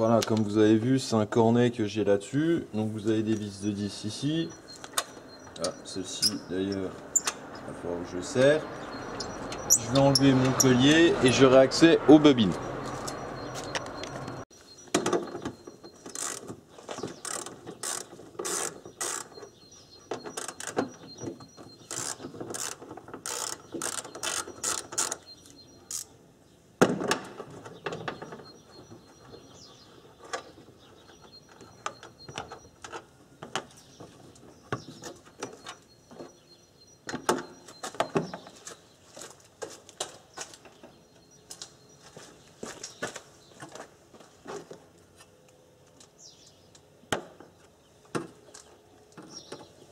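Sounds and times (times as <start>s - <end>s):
ratchet wrench clicking: 21.9s - 25.2s.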